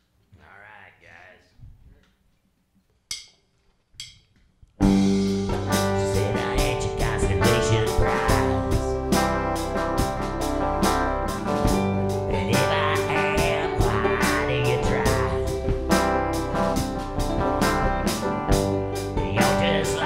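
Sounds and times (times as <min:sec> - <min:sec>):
folk band playing: 0:04.8 - 0:20.0
man singing: 0:05.7 - 0:09.2, 0:12.3 - 0:16.0, 0:19.2 - 0:20.0.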